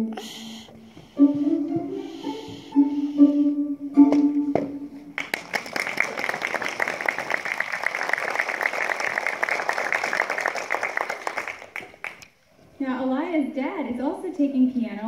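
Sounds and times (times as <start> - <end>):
audience applause: 5.2 - 12.3.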